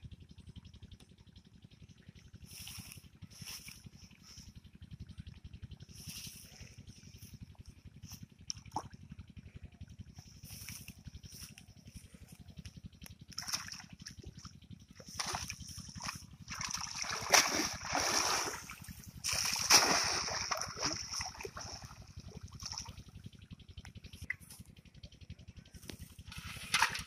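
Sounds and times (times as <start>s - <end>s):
water splashing off a net: 13.3s - 14.2s, 15.0s - 23.0s.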